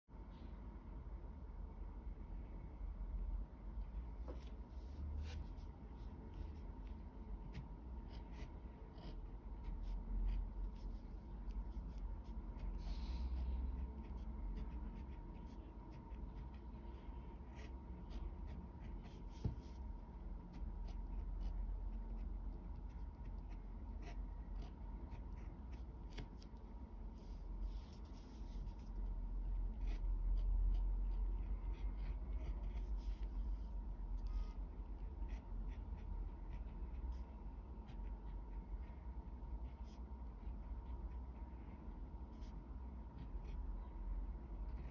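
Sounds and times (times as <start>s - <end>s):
faint steady hum: 0.0s - 44.9s
pen scratching on paper: 6.3s - 12.7s, 13.4s - 39.0s.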